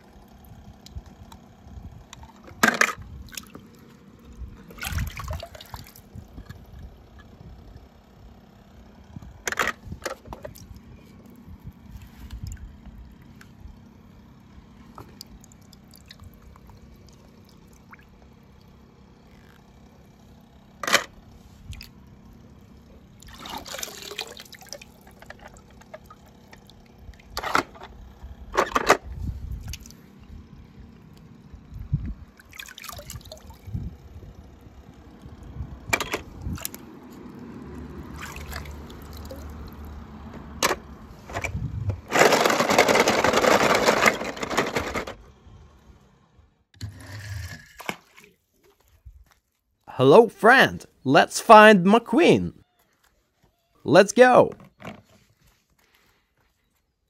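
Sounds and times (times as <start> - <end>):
toy cars splashing into water: 23.2 - 25.6, 32.4 - 33.5, 38.1 - 39.6.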